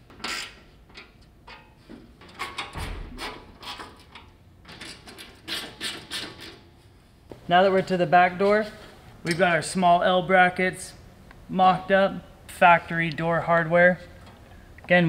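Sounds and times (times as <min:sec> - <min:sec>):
hand tool scraping on bolts: 0:03.2 - 0:06.7.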